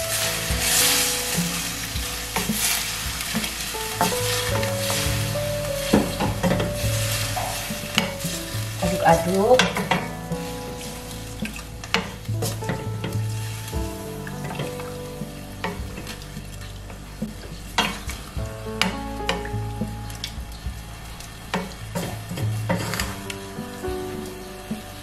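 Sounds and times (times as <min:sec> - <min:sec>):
sizzling in a frying pan: 0:00.0 - 0:12.3
soft background music: 0:00.0 - 0:25.0.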